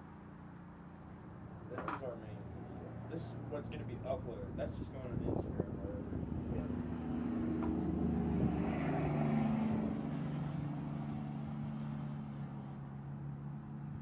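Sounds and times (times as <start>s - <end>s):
passing engine humming: 0.0s - 14.0s.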